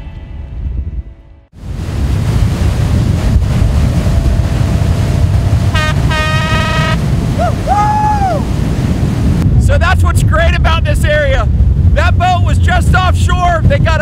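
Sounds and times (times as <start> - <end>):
boat engine rumble: 0.0 - 14.0
wind on microphone: 0.0 - 14.0
water noise: 1.6 - 13.8
boat horn toot: 3.2 - 7.4.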